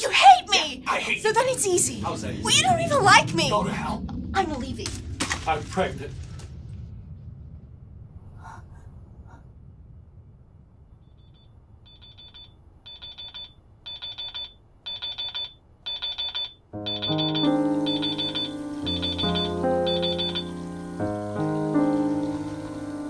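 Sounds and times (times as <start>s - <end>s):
alarm clock beeping: 11.3s - 20.6s.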